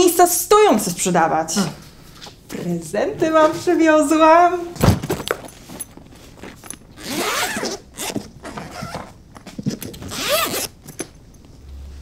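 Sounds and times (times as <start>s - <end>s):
suitcase zipper rasping: 5.2s - 11.0s.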